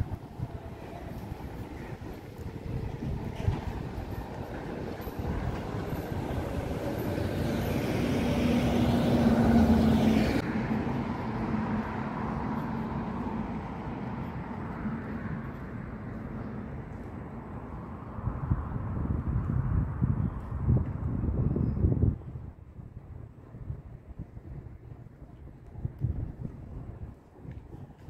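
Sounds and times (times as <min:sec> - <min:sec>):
vehicle engine passing by: 0:05.3 - 0:13.8.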